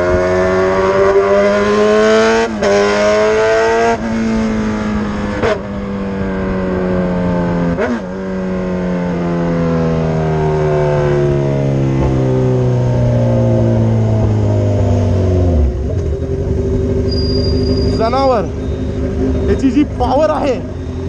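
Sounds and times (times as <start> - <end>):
motorcycle engine revs falling: 10.6 - 21.0.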